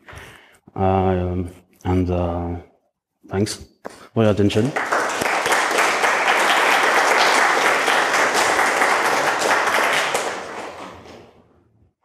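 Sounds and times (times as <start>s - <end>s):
audience applauding: 4.6s - 11.4s.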